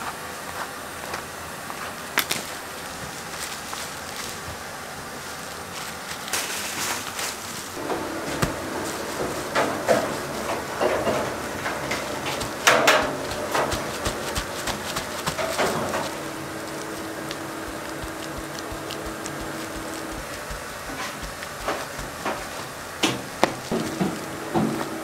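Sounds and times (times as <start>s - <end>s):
steady hum: 7.4s - 25.0s.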